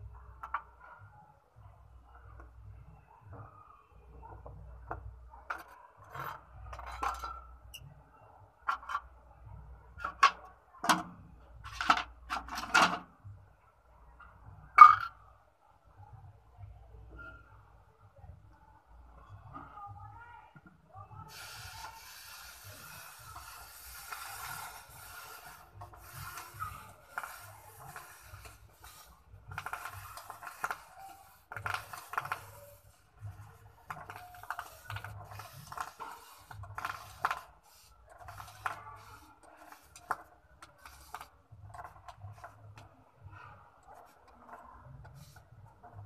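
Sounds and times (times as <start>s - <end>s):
hot metal sizzling in water: 21.3s - 33.0s.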